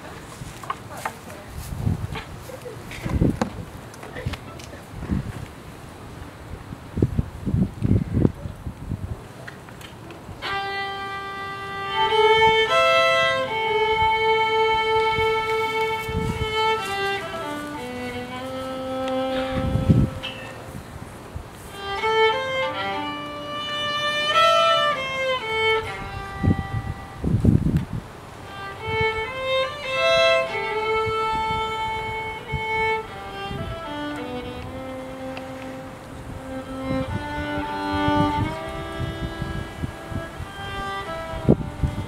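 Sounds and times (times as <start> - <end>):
violin slow melody: 10.3 - 42.0.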